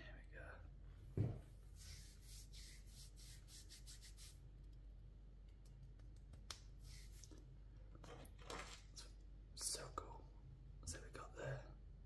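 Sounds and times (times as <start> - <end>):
hand rubbing bare arm: 1.7 - 4.4.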